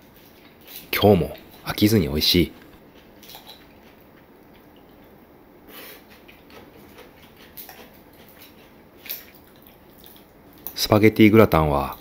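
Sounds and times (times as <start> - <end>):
chewing lettuce: 0.0 - 1.8, 2.5 - 5.2, 5.8 - 10.8.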